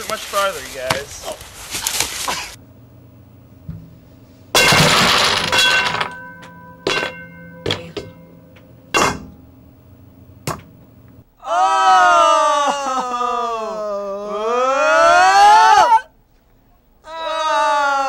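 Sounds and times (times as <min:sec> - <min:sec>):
wooden blocks collapsing: 0:04.6 - 0:07.9
ringing tone: 0:05.6 - 0:08.9.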